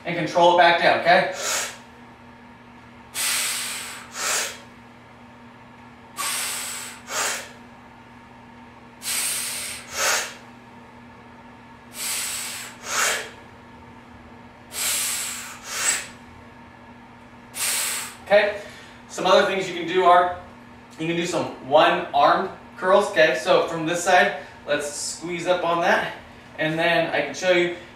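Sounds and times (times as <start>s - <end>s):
man breathing hard: 1.3s - 1.9s, 3.2s - 4.7s, 6.2s - 7.6s, 9.0s - 10.4s, 11.9s - 13.4s, 14.7s - 16.2s, 17.6s - 19.1s.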